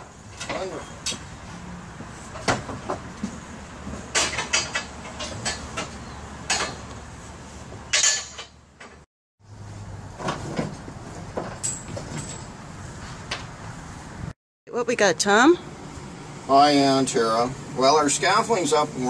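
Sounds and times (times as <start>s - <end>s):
metal scaffolding clanks: 2.3s - 6.9s, 7.9s - 9.0s.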